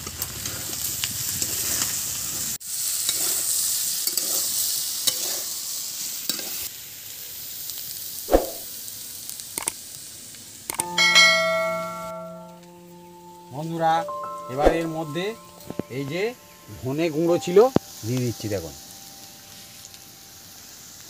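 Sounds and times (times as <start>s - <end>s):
potatoes sizzling in pan: 0.0s - 11.0s, 15.1s - 21.0s
spatula scraping pan: 3.0s - 5.6s
chime of held tones: 10.8s - 21.0s.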